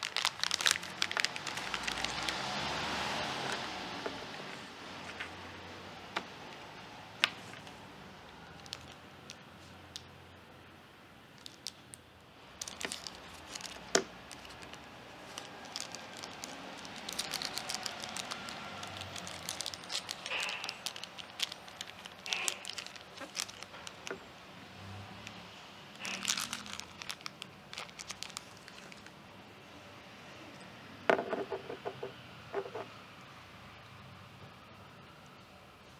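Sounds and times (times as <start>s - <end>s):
plastic bag crinkling: 0.0s - 2.5s, 8.5s - 9.4s, 12.5s - 24.2s, 26.0s - 29.1s.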